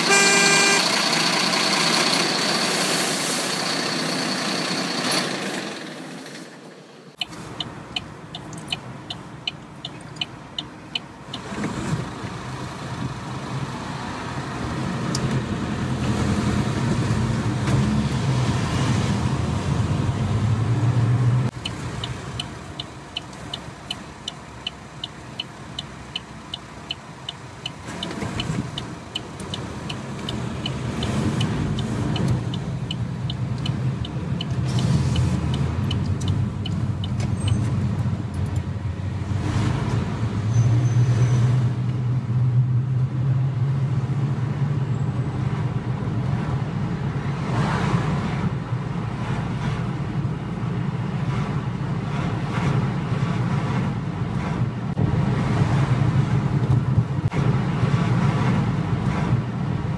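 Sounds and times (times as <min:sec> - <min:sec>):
car engine and road noise: 0:00.0 - 0:59.9
regular ticking: 0:07.2 - 0:11.5, 0:21.5 - 0:37.6.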